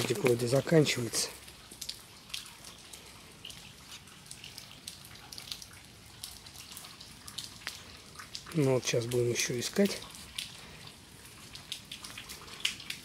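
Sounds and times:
raindrops dripping on leaves: 0:00.0 - 0:13.0.

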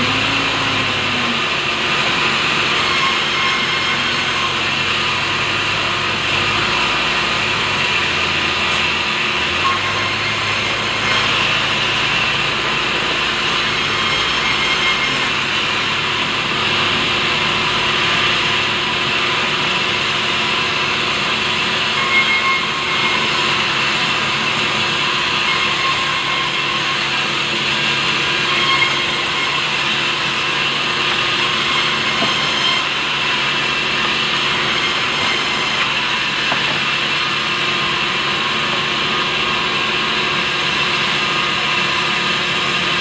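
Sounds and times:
band saw ripping timber: 0:07.8 - 0:16.2, 0:21.5 - 0:38.2.

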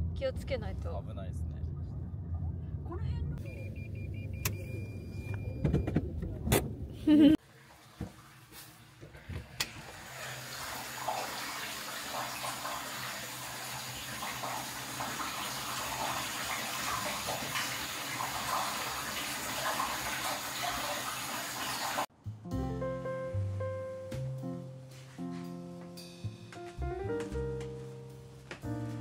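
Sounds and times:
water running into a bath: 0:07.4 - 0:22.1
music: 0:22.1 - 0:29.0.

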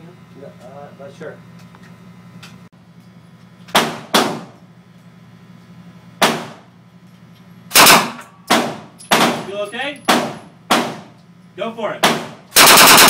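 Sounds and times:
gunshots indoors: 0:03.7 - 0:04.5, 0:06.2 - 0:06.7, 0:07.7 - 0:09.5, 0:10.1 - 0:11.1, 0:12.0 - 0:13.0.

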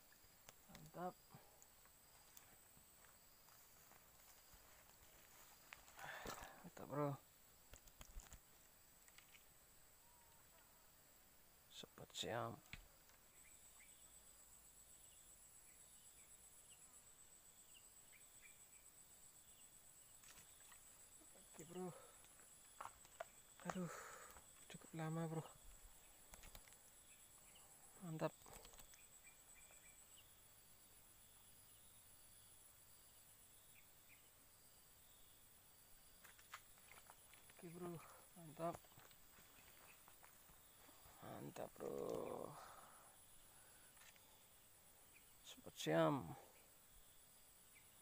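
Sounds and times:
faint chirps: 0:11.7 - 0:31.0, 0:36.9 - 0:48.0.

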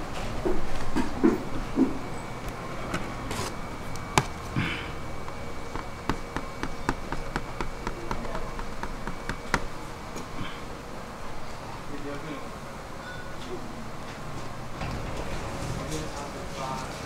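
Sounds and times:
metal scraper tapping sugar: 0:05.3 - 0:09.7.

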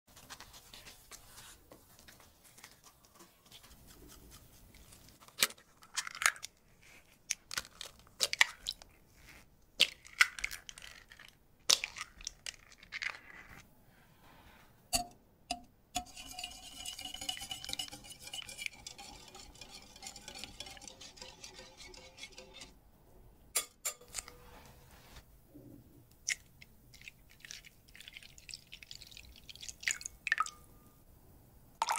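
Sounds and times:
whisk beating against glass: 0:16.0 - 0:22.7.

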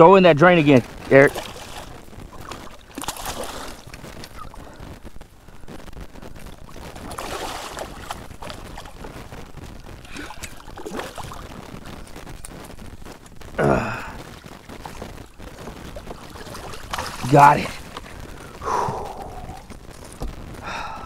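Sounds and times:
water sloshing: 0:00.6 - 0:04.7, 0:06.5 - 0:09.3, 0:10.0 - 0:12.4, 0:14.7 - 0:20.2
fish thrashing and splashing: 0:00.8 - 0:05.1, 0:06.2 - 0:12.5, 0:14.6 - 0:20.2.

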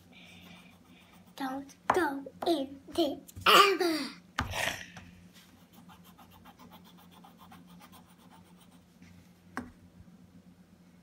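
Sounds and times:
marker scribbling on paper: 0:05.6 - 0:08.8.

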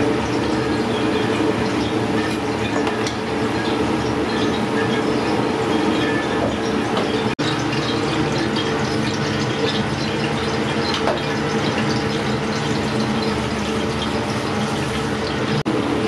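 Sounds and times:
low kitchen hum: 0:00.0 - 0:16.0.

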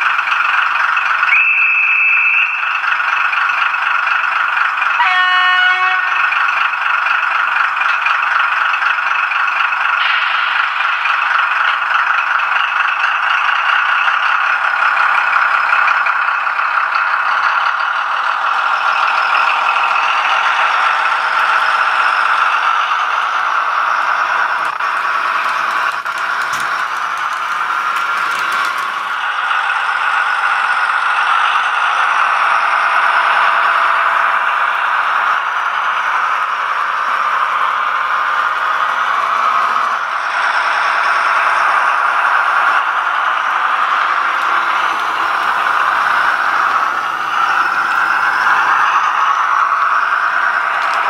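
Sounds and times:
model train wheels clattering on rail: 0:00.0 - 0:01.5, 0:05.7 - 0:51.0.

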